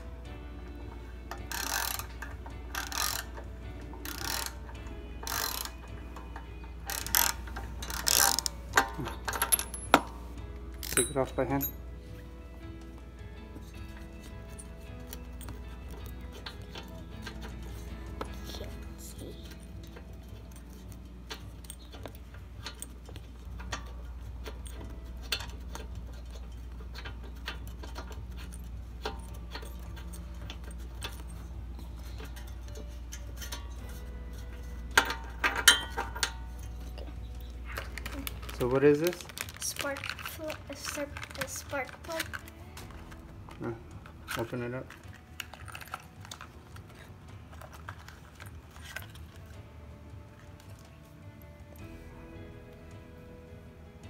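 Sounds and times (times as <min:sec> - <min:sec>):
wrench clicks: 0:01.3 - 0:10.1, 0:19.4 - 0:37.5.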